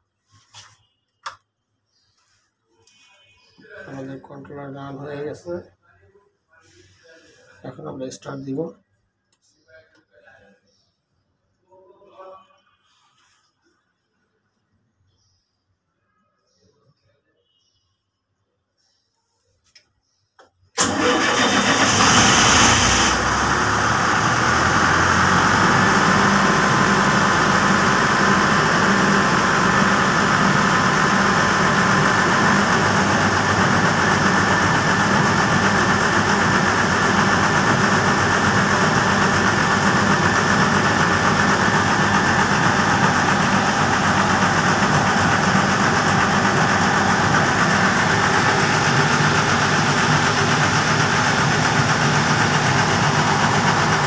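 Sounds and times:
generator engine running: 20.8 - 54.0.

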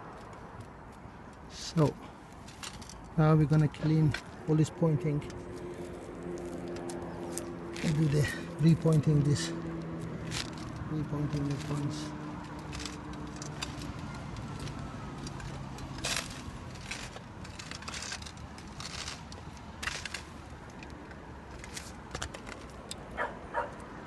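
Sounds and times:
scratching out mortar: 10.2 - 20.5.

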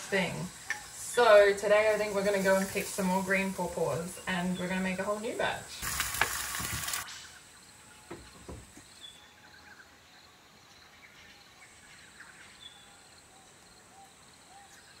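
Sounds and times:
high insect buzz: 5.8 - 10.3.

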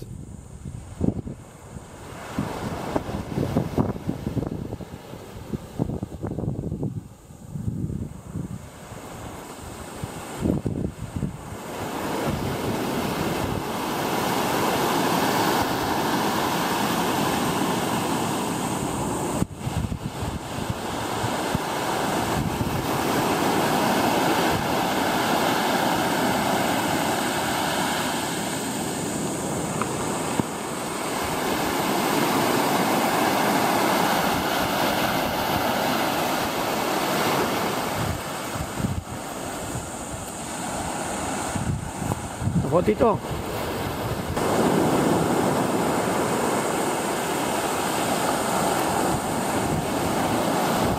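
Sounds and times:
waves breaking on sandy beach: 0.0 - 50.9.

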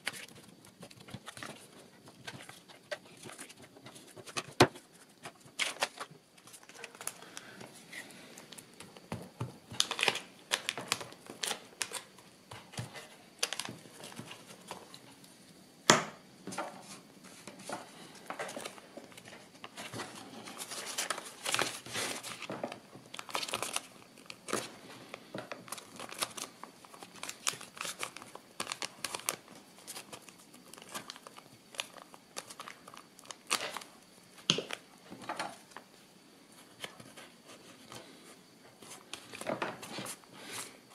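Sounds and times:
paper and cardboard rustling: 0.0 - 8.2, 16.5 - 24.7.

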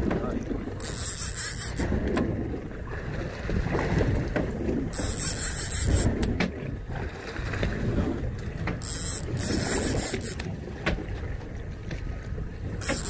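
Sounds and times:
wind and boat rumble: 0.0 - 13.0
fishing reel ratcheting buzz: 0.8 - 1.9, 4.9 - 6.4, 8.8 - 10.5, 12.8 - 13.0.

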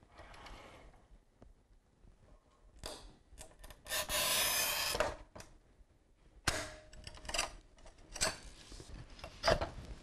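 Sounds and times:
tile cutter wheel scraping: 3.9 - 5.0.

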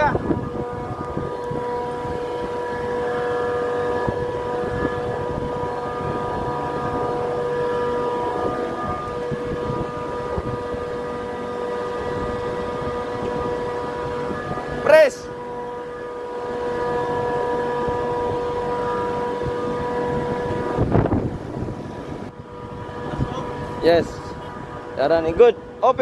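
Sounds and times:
fans humming and whining: 0.0 - 26.0.

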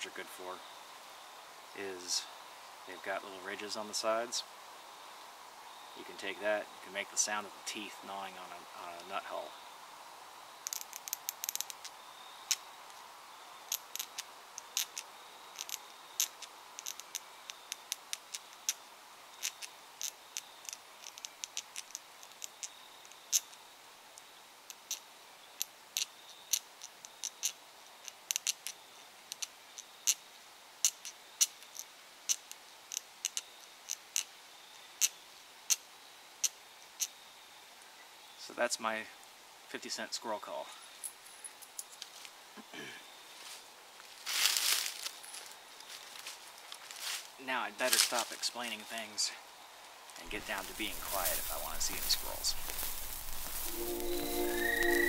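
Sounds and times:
coins clicking squirrel call: 10.7 - 12.6, 13.7 - 18.8, 19.4 - 23.6, 24.7 - 25.0, 25.6 - 30.2, 30.8 - 34.3, 50.6 - 55.0.

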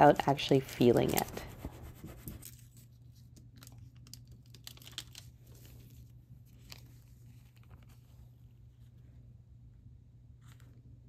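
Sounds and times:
foil crinkling and crackling: 3.6 - 8.0.

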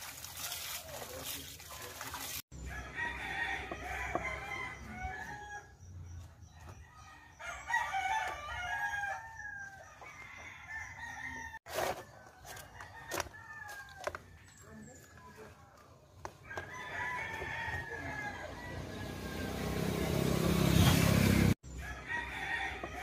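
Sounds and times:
rooster crowing: 2.6 - 5.8, 6.7 - 11.7, 16.4 - 20.3, 21.7 - 23.0.

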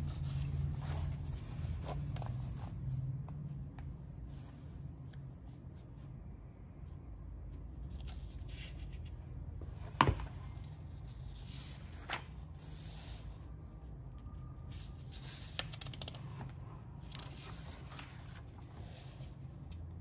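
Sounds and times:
paper pages rustling: 0.0 - 2.9, 7.9 - 12.6, 14.7 - 19.7
low steady hum: 0.0 - 20.0.

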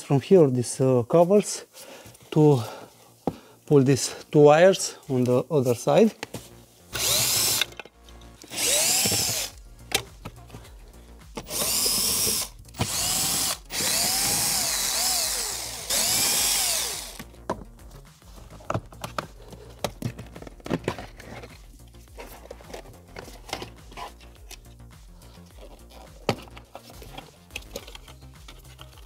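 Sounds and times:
cordless drill motor whine: 6.9 - 7.7, 8.4 - 9.6, 11.4 - 17.3.

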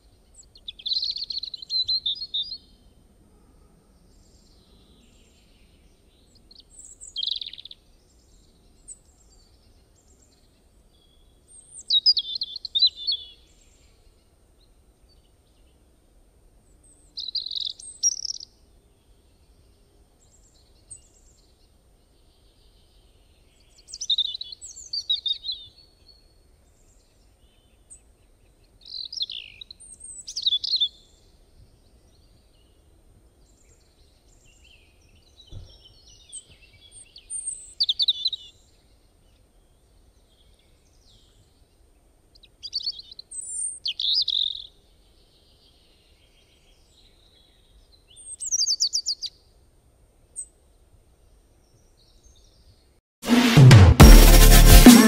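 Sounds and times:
lovebird chirping: 6.6 - 7.8, 17.2 - 18.4.

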